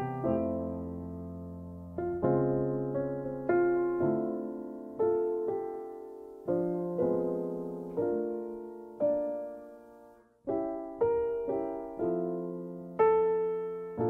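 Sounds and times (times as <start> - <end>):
slow piano chords: 0.0 - 14.0.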